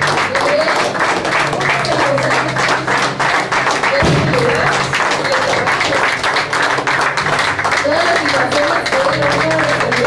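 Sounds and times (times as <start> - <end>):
crowd applauding: 0.0 - 10.0.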